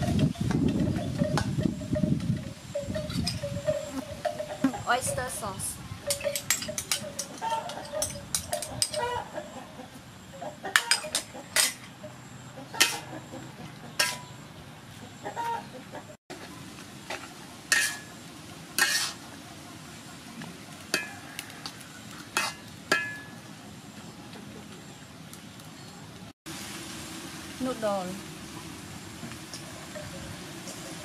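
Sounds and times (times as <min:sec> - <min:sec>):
chickens clucking: 0:02.8 - 0:16.6
metal spatula clanking on wok: 0:06.1 - 0:09.1, 0:10.7 - 0:11.9, 0:12.8 - 0:13.2, 0:14.0 - 0:14.4, 0:17.7 - 0:18.1, 0:18.8 - 0:19.2, 0:20.9 - 0:21.5, 0:22.3 - 0:23.4
food sizzling: 0:16.3 - 0:23.3, 0:26.5 - 0:31.0.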